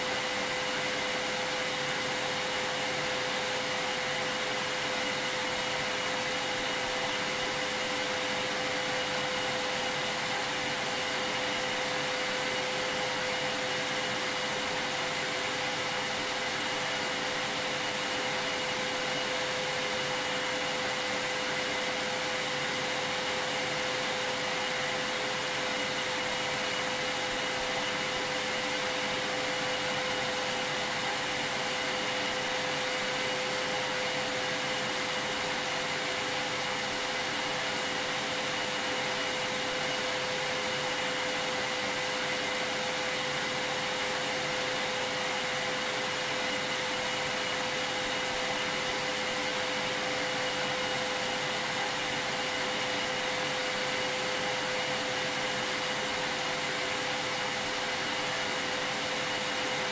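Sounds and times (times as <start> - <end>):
vacuum cleaner running: 0.0 - 59.9.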